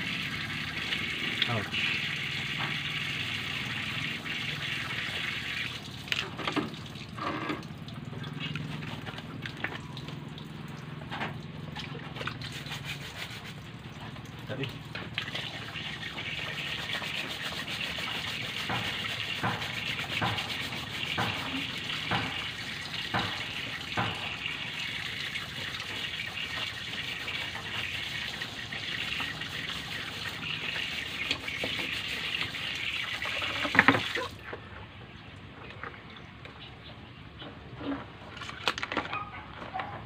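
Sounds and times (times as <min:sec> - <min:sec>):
tap water running into sink: 0:00.0 - 0:13.2, 0:13.8 - 0:34.4
knocks and clatters in sink: 0:18.4 - 0:24.7.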